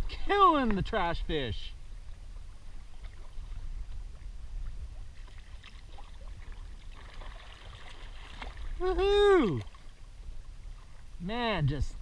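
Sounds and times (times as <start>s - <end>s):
wind on microphone: 0.8s - 12.0s
water lapping against kayak hull: 1.8s - 11.3s
small splashes and knocks: 5.0s - 8.8s.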